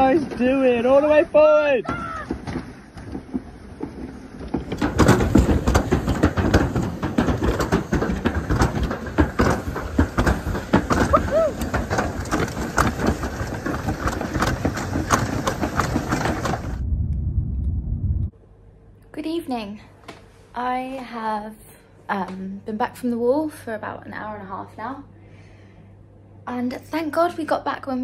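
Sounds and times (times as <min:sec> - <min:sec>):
sled rattling down metal chute: 0:00.0 - 0:16.8.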